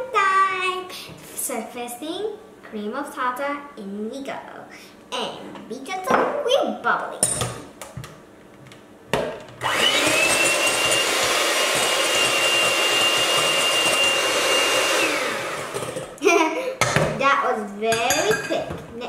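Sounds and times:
electric hand mixer whining: 9.6s - 16.2s.

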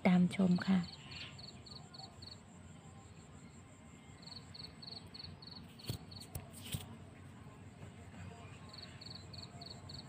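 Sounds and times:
cricket chirping: 0.1s - 6.3s, 8.4s - 10.0s.

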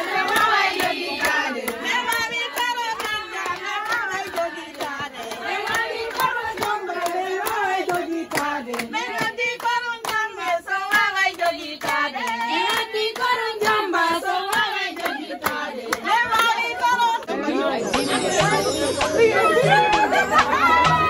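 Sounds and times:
hand clapping: 0.0s - 16.7s
women chanting a song: 0.0s - 17.8s.

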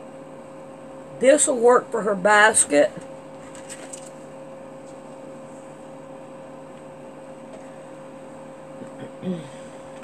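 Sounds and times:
room hum: 0.0s - 10.0s.

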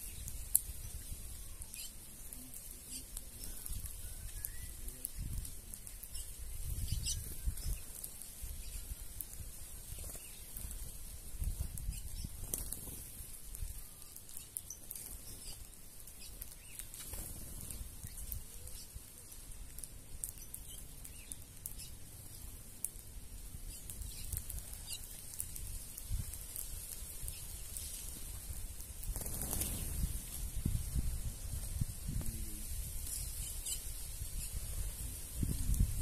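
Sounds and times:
faint bird chirps: 0.0s - 10.8s, 11.9s - 19.6s, 23.6s - 25.4s, 32.2s - 35.6s
wings fluttering: 0.0s - 36.0s.

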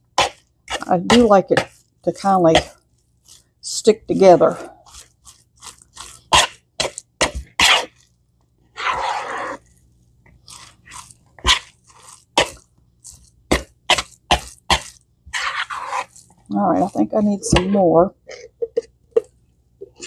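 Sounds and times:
wet squishing and crunching stirring: 0.0s - 17.8s
spoon scraping plastic bowl: 4.4s - 8.1s, 8.7s - 9.7s, 10.5s - 17.8s.

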